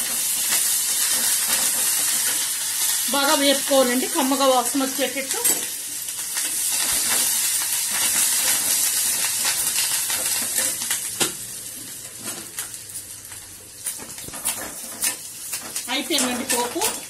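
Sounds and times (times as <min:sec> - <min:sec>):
spoon stirring and scraping pan: 0:00.0 - 0:04.5, 0:05.4 - 0:11.0, 0:13.8 - 0:17.0
spices sizzling in hot oil: 0:00.0 - 0:17.0.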